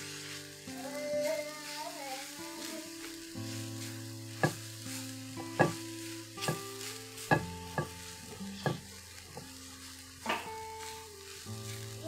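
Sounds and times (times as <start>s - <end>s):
frying sizzle: 0.0s - 12.0s
spatula stirring food in skillet: 0.0s - 12.0s
spatula knocking against pan: 4.4s - 4.6s, 5.6s - 5.8s, 6.4s - 6.6s, 7.2s - 8.0s, 8.6s - 8.9s.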